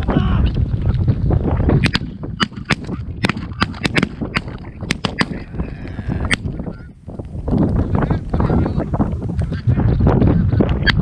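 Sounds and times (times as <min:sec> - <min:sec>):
volley of shotgun shots: 0:01.8 - 0:05.5.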